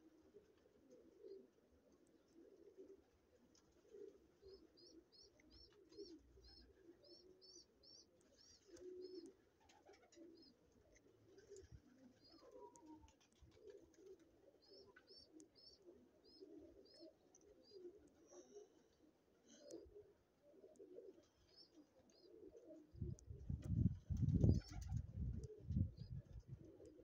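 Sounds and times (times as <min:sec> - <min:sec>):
pigeons cooing: 0:00.0 - 0:27.0
small bird chirping: 0:04.4 - 0:09.3, 0:14.6 - 0:18.5.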